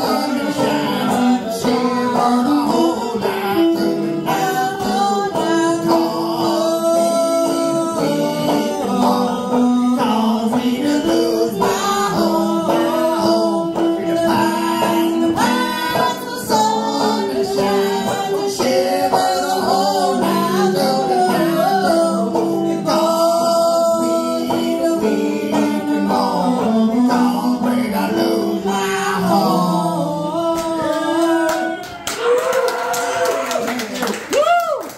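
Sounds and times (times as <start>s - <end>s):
banjo: 0.0s - 33.5s
person singing: 0.0s - 33.6s.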